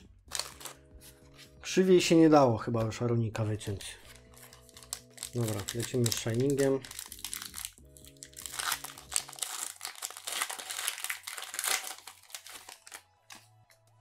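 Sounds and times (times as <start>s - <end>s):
soft background music: 0.0s - 14.0s
foil wrapper crinkling: 0.3s - 0.8s, 4.0s - 13.4s.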